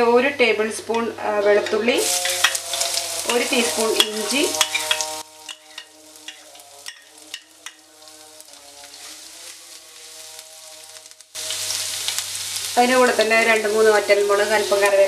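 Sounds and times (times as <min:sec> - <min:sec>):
soft background music: 0:01.2 - 0:11.6
spices sizzling in a pan: 0:01.3 - 0:15.0.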